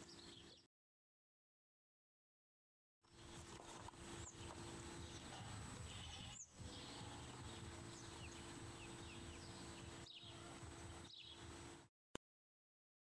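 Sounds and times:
small birds chirping: 0.0s - 0.7s, 3.1s - 11.8s
low steady hum: 3.1s - 11.9s.

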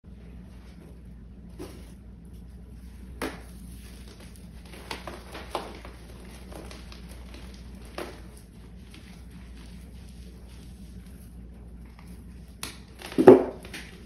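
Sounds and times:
low hum: 0.0s - 14.0s
hands crushing chalk: 3.1s - 11.3s.

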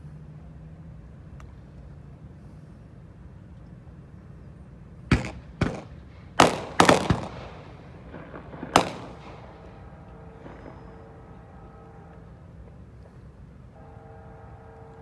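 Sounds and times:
steady low hum: 0.0s - 15.0s
sharp echoing bangs: 5.1s - 11.6s.

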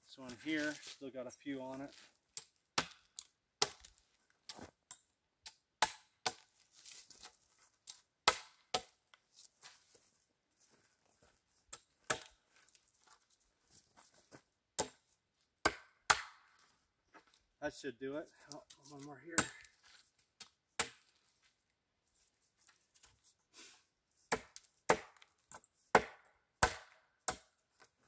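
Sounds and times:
hatchet chopping wood: 2.4s - 6.5s, 8.2s - 9.0s, 11.7s - 12.4s, 14.8s - 15.0s, 15.6s - 16.5s, 19.4s - 19.7s, 20.8s - 21.1s, 24.3s - 27.6s.

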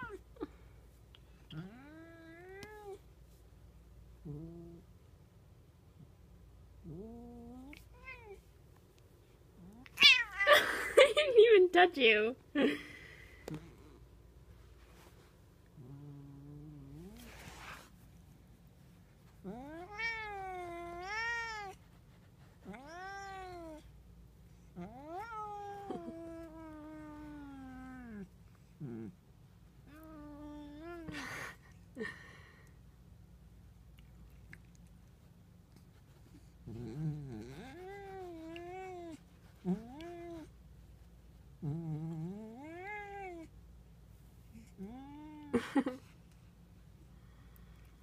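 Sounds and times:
cat meowing: 9.8s - 10.5s, 19.5s - 21.8s
cat yowling: 9.8s - 10.6s, 24.8s - 28.2s.

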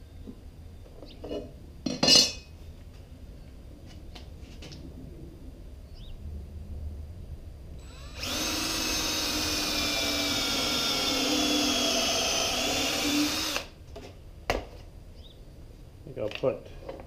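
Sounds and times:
cordless drill boring into wood: 7.8s - 13.8s.

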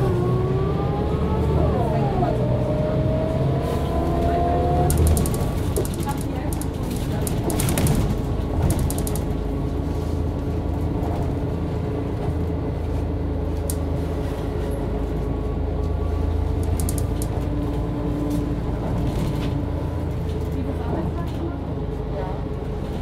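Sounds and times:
bus engine droning: 0.0s - 23.0s
light body rattles: 5.0s - 9.4s.

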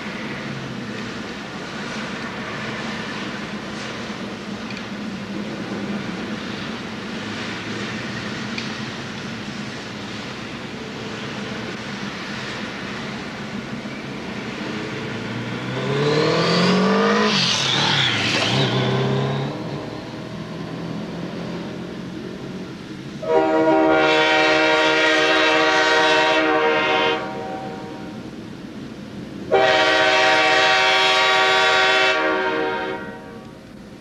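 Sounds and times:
diesel locomotive engine rumble: 0.0s - 34.0s
car passing by: 9.9s - 23.1s
locomotive air horn chord: 23.2s - 28.3s, 29.5s - 33.6s.

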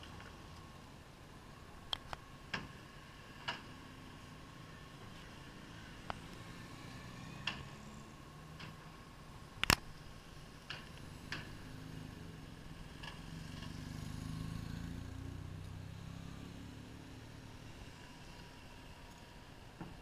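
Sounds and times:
vehicle engine hum: 0.0s - 20.0s
motorcycle rolling past: 11.0s - 18.3s.

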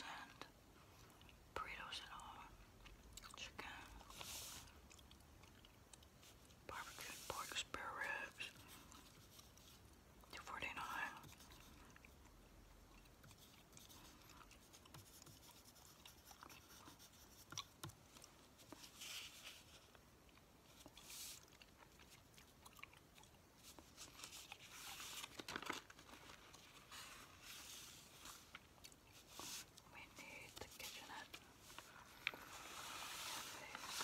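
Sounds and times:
chewing gum: 2.6s - 6.6s, 11.4s - 18.5s, 19.9s - 24.7s
newspaper rustling: 23.8s - 29.8s, 30.6s - 34.0s.

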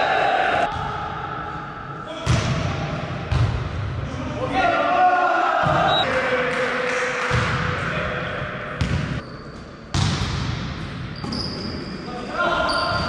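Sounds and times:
volleyball strikes: 8.8s - 9.2s
shoe squeak: 9.2s - 9.7s, 11.2s - 13.0s.

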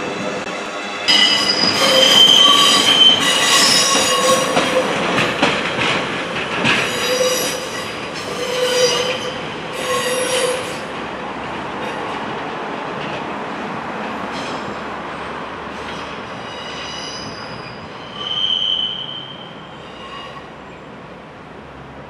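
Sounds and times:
train rumble: 0.0s - 18.3s
train wheels squealing: 1.1s - 4.8s, 6.8s - 10.8s, 15.8s - 20.9s.

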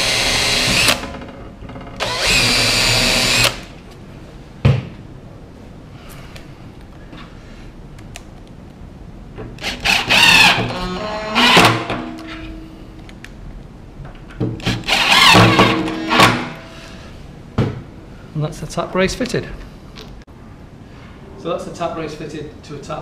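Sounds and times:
power drill whining: 0.0s - 1.1s, 2.0s - 3.7s, 9.6s - 11.8s, 14.6s - 16.5s.

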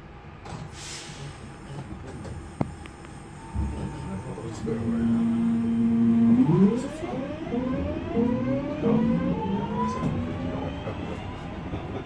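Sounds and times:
electric train motors whining: 3.0s - 11.8s.

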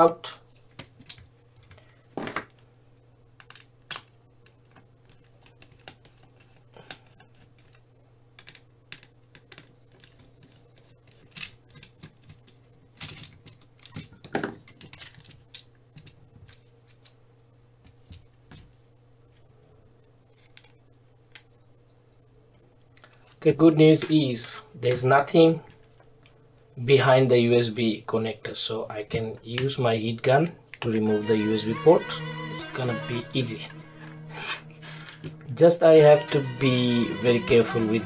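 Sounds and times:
plastic parts clicking: 3.4s - 7.8s, 8.4s - 17.2s
steady low hum: 30.6s - 37.2s.

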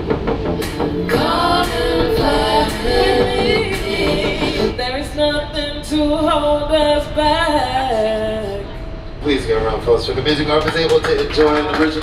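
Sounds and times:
backing track with steady beat: 0.0s - 4.8s
woman singing into microphone: 1.1s - 8.8s.

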